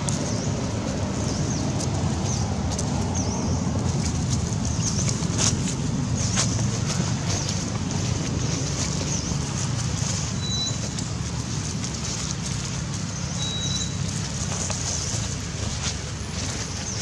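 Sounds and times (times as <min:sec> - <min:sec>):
steady low rumble: 0:00.0 - 0:13.3.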